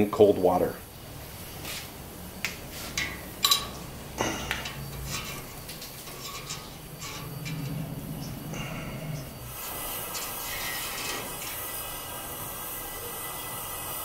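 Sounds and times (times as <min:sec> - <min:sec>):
propane burner hum: 0:00.0 - 0:14.0
metal parts clinking in pot: 0:03.0 - 0:07.9.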